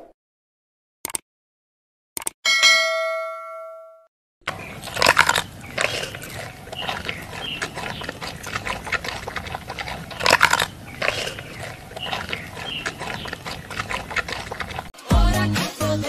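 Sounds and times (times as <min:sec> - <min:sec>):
animals crunching sugarcane: 0:04.4 - 0:15.0.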